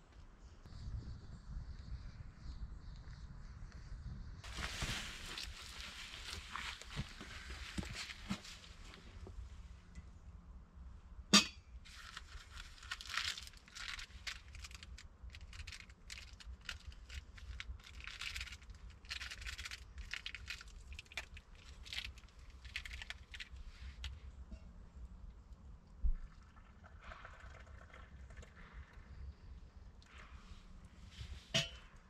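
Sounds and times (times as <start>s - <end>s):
rustling and crinkling: 4.4s - 9.6s, 11.8s - 24.5s.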